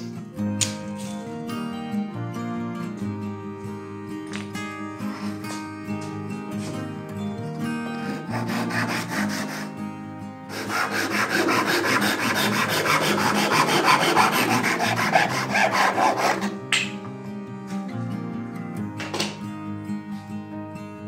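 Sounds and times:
soft acoustic guitar music: 0.0 - 10.6, 12.1 - 21.0
pull saw cutting wood: 8.0 - 9.8, 10.5 - 16.6.

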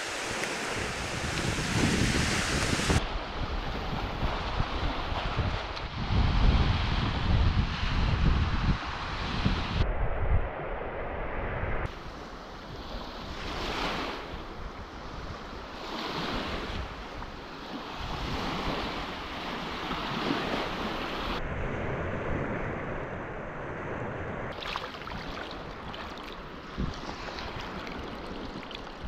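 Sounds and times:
small waves breaking on beach: 0.0 - 8.1, 11.9 - 21.4, 24.5 - 29.0
wind buffeting microphone: 0.0 - 29.0.

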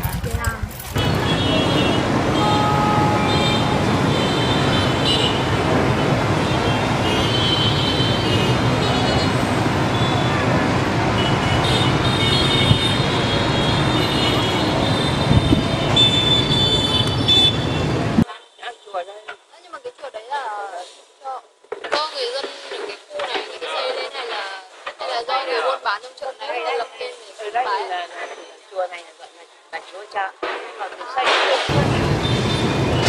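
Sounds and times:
traffic engines and tyres: 0.0 - 18.3, 31.7 - 33.0
car horns beeping: 1.0 - 18.2.

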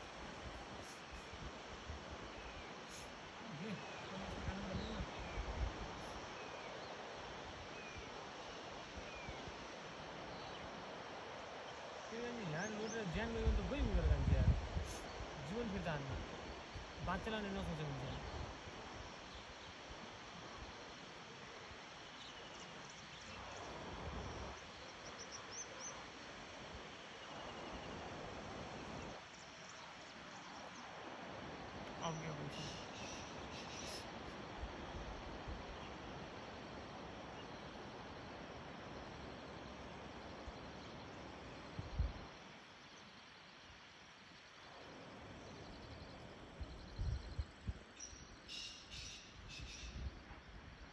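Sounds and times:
faint insect trills: 0.0 - 50.9
steady hiss: 0.0 - 50.9
wind and rustling leaves: 0.0 - 50.9
wind bumps on microphone: 13.4 - 15.0.

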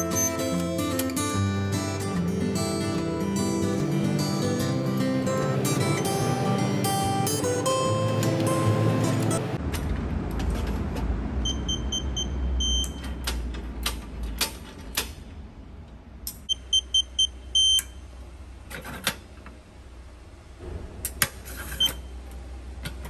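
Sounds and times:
keypad lock beeps: 11.4 - 13.1, 16.5 - 18.0.

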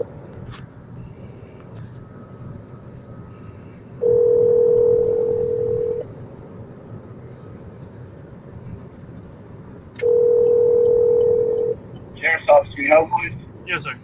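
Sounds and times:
car road noise: 0.0 - 14.0
telephone ringback tone: 4.0 - 6.1, 10.0 - 11.8.

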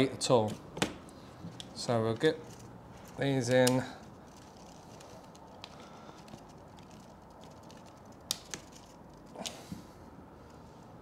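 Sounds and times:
small clicks and scrapes: 1.4 - 9.7.

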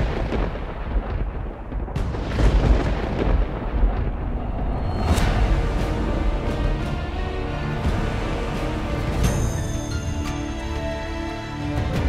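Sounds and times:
deep continuous rumble: 0.0 - 9.3
booming cinematic hits: 0.0 - 9.6.

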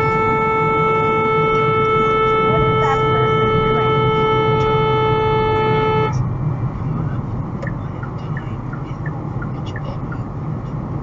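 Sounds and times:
car horn long blast: 0.0 - 6.2
moving car road and engine noise: 0.0 - 11.0.

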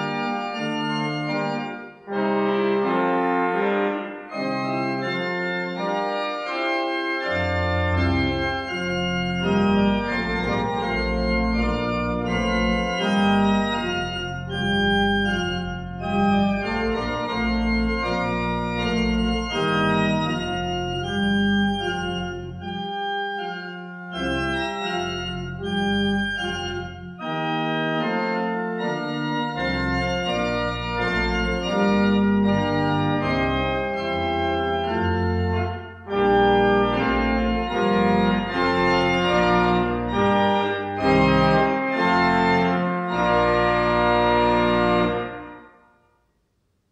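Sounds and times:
deep organ pedal bass: 0.0 - 45.7
church organ chords: 0.0 - 46.1.

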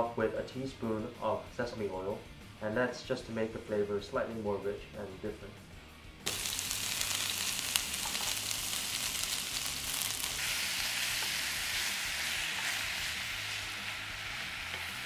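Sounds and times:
food sizzling in a pan: 6.2 - 15.0.

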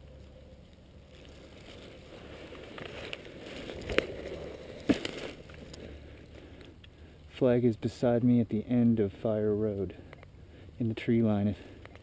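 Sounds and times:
rustling in dry leaves: 0.0 - 6.7
twigs snapping: 0.1 - 7.0.

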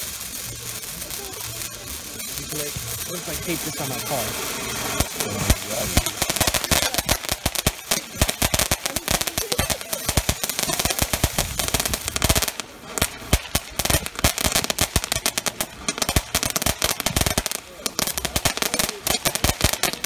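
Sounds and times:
firework crackling pops: 0.0 - 20.0.

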